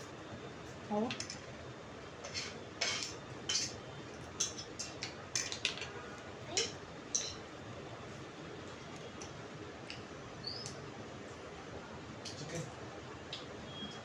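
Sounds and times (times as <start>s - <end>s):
utensils clinking on a plate: 2.2s - 5.9s.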